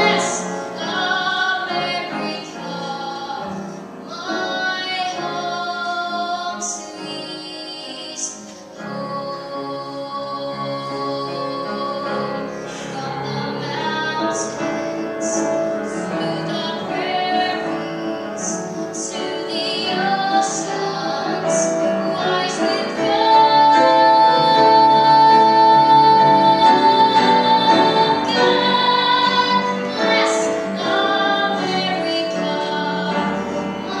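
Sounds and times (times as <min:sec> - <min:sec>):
person singing: 0:00.0 - 0:34.0.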